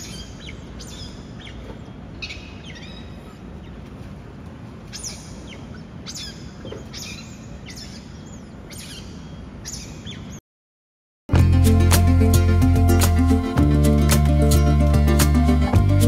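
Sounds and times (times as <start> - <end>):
otters chirping: 0.0 - 3.9, 4.9 - 10.4.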